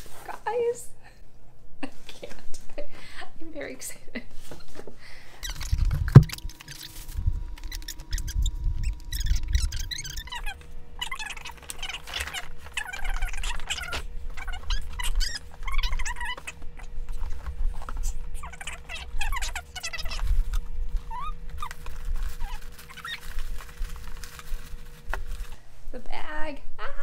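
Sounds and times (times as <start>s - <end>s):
paper bag rustling and crinkling: 8.8s - 25.7s.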